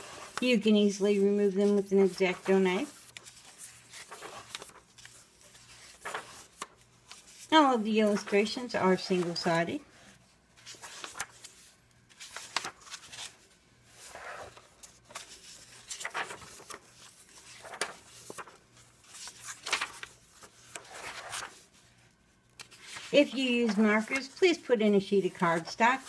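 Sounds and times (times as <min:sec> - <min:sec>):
book pages turning: 0:00.0 - 0:24.6
pages flapping flat: 0:02.4 - 0:07.5, 0:10.6 - 0:21.7, 0:22.5 - 0:24.4.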